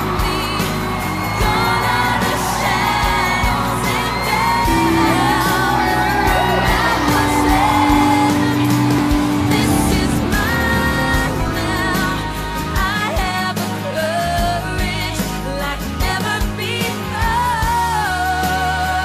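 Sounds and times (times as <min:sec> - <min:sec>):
crowd whooping: 0:00.0 - 0:14.0
live pop music with singing: 0:00.0 - 0:19.0.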